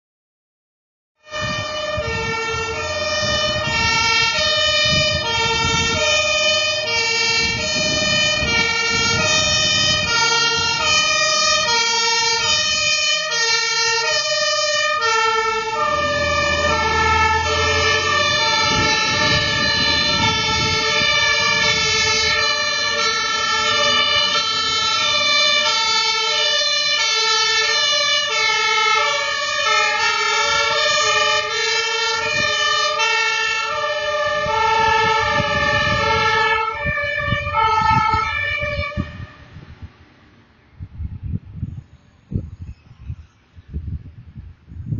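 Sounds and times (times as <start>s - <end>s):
two-tone fire engine sirens: 1.2s - 39.9s
truck engine rumbling: 1.2s - 44.9s.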